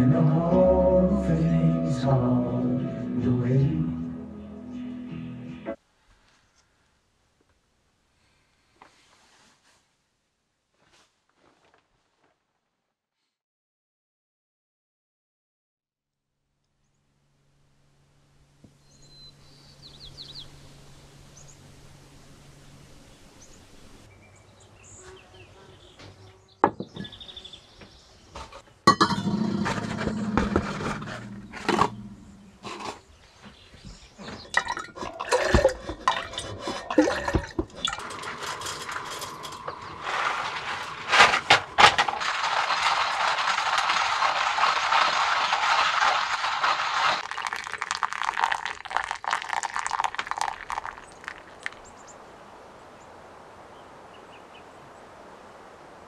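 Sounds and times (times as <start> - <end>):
dishes and utensils clinking: 28.5 - 33.0, 34.4 - 43.0
water pouring from kettle: 34.5 - 41.0, 41.9 - 51.8.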